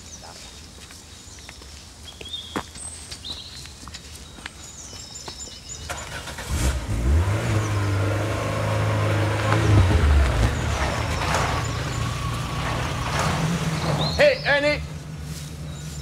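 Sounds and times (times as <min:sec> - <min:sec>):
car engine running: 0:06.1 - 0:16.0.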